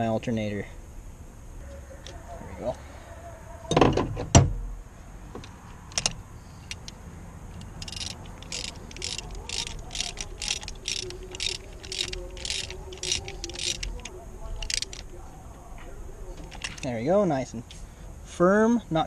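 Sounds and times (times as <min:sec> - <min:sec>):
socket ratchet clicking: 0:05.4 - 0:07.0, 0:07.6 - 0:15.1, 0:16.4 - 0:16.9.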